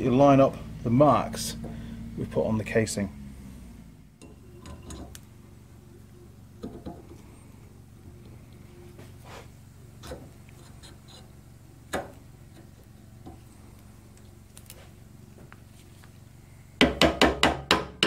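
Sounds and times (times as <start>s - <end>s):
mallet knocking on metal housing: 16.8s - 18.0s.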